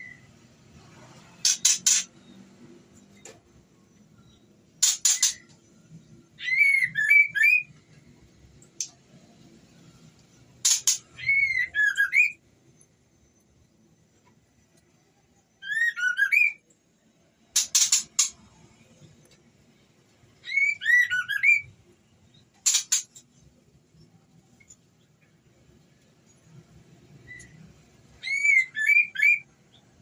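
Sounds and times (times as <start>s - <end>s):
bird harsh chattering: 1.4s - 2.1s, 4.8s - 5.4s, 10.6s - 12.0s, 17.6s - 18.4s, 22.6s - 23.2s
bird whistled calls: 6.4s - 7.7s, 10.7s - 12.4s, 15.6s - 16.6s, 20.4s - 21.7s, 28.2s - 29.5s.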